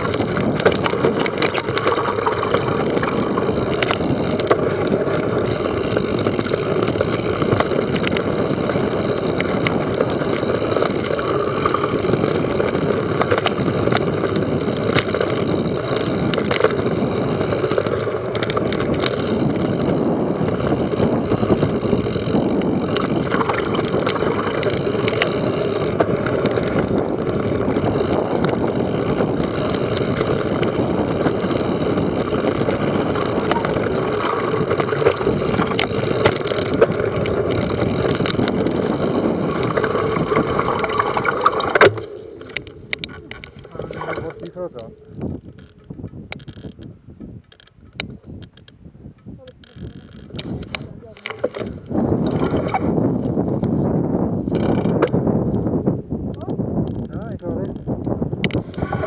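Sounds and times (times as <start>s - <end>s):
tyres rolling over dirt: 0.0s - 45.7s
bike rattling over bumps: 0.0s - 59.0s
wind rush over microphone: 0.0s - 59.0s.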